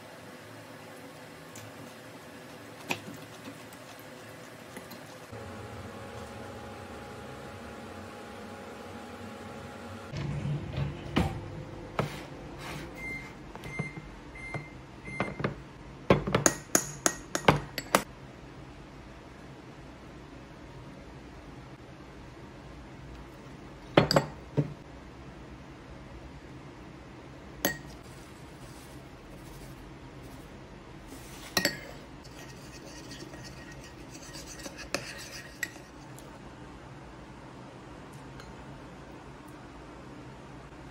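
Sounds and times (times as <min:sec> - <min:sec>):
dishes clinking: 0:31.5 - 0:32.4
kitchenware clinking: 0:31.5 - 0:35.9.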